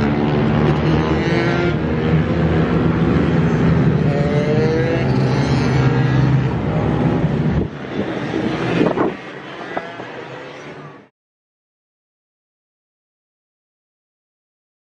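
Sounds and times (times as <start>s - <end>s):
pit bike engine revving: 0.0s - 10.3s.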